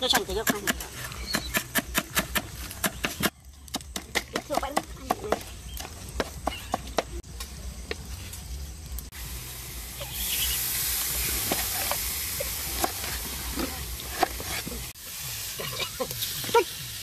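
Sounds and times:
steady bright hiss: 0:07.3 - 0:17.0.

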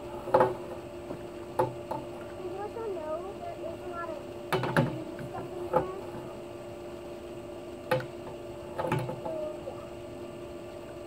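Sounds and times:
steady low hum: 0:00.0 - 0:11.0
pole knocking and clattering: 0:00.2 - 0:02.1, 0:04.5 - 0:06.3.

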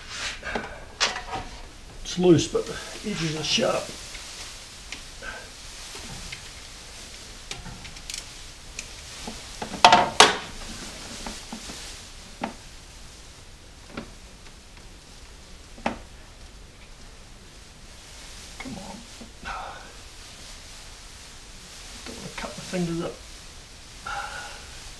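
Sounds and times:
tools clattering: 0:00.9 - 0:01.7.

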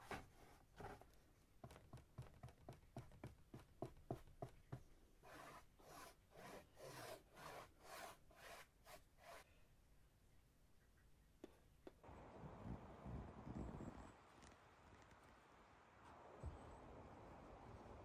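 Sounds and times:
scratchy rubbing on hard surface: 0:05.2 - 0:09.5.

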